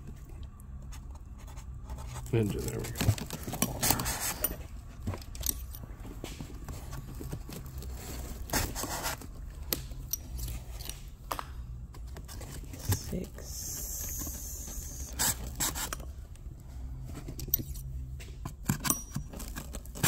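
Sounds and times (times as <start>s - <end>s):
cardboard crunching and scraping: 1.5s - 4.7s, 6.1s - 9.5s.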